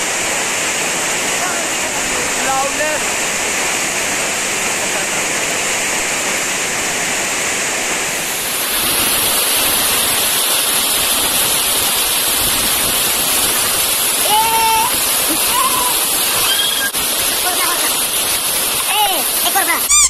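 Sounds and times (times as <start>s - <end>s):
heavy rain and hail pelting: 0.0s - 20.0s.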